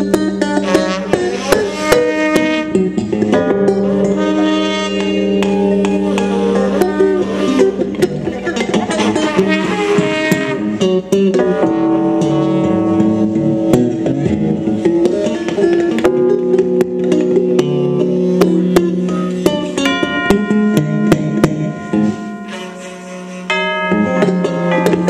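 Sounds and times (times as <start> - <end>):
wind instrument: 0.0 - 13.8, 18.2 - 25.0
electric guitar: 0.0 - 25.0
keyboard: 15.8 - 25.0.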